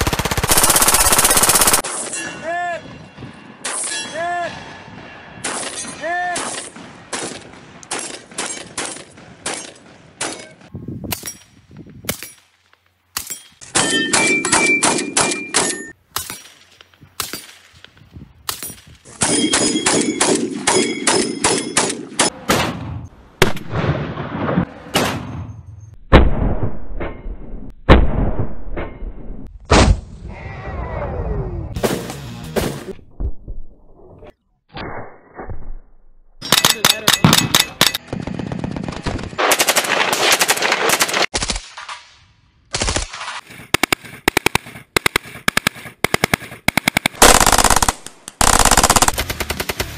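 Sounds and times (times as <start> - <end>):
rifle shots: 18.5 - 25.4, 42.7 - 49.9
heavy gunshots with deep boom: 19.2 - 25.5, 26.1 - 30.1, 45.1 - 49.9.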